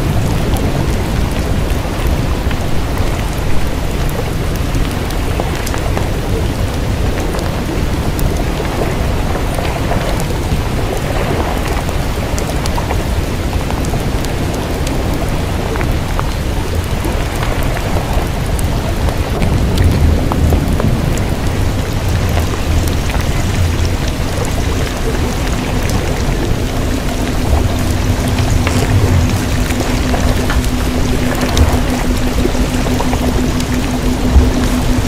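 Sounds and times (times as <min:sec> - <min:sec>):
heavy low rumble: 0:00.0 - 0:35.0
hissing crackling noise: 0:00.0 - 0:35.0
faint low hum: 0:23.9 - 0:35.0.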